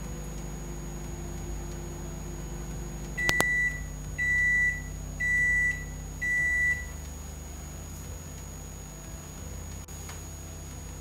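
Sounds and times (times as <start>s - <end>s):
microwave beeps: 3.2s - 6.9s
microwave click: 3.3s - 3.6s.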